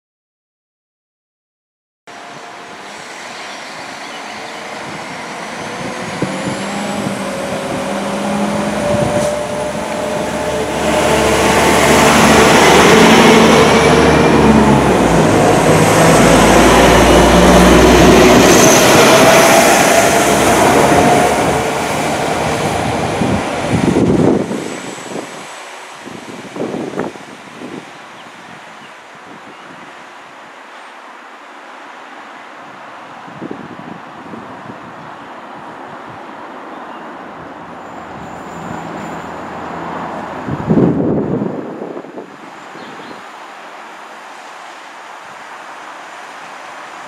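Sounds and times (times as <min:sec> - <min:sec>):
diesel train engine droning: 0:02.1 - 0:25.3
train wheels rumbling: 0:02.5 - 0:25.4
wind on microphone: 0:03.8 - 0:30.0, 0:33.2 - 0:36.4, 0:37.3 - 0:43.3.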